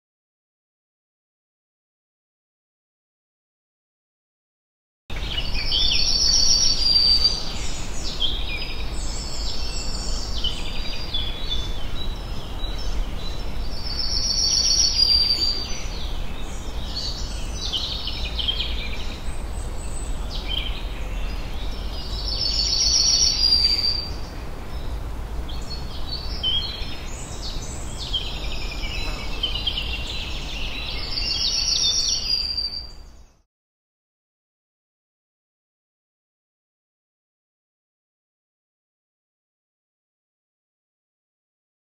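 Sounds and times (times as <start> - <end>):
woodland birds chirping: 5.1 - 33.4.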